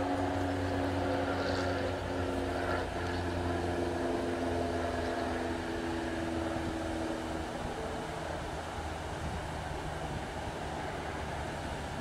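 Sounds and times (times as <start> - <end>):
engine drone: 0.0 - 12.0.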